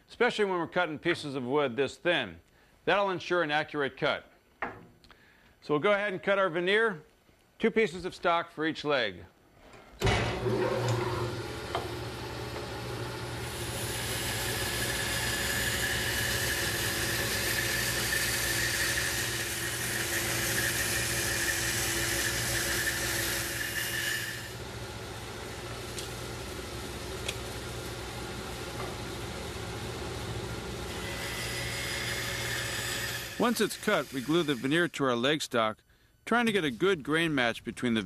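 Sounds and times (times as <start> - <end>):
saw blade cutting wood: 10.0 - 24.6, 30.3 - 35.0
bandsaw motor running: 10.0 - 34.8.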